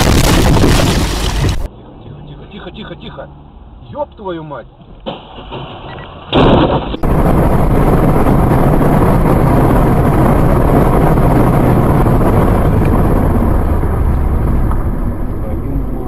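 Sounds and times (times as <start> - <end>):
loud burst: 0.0 - 1.7, 6.4 - 14.0
wind and road noise: 0.0 - 16.0
low hum: 7.0 - 16.0.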